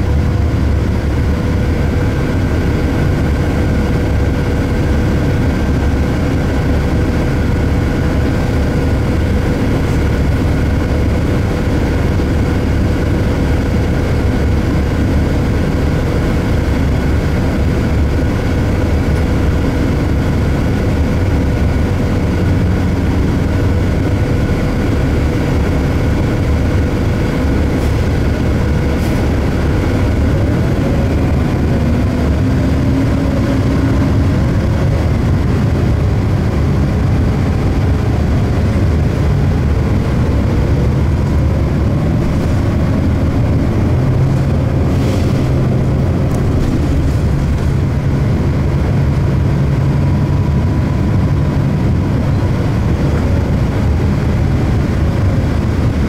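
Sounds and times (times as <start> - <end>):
bus engine idling: 0.0 - 56.0.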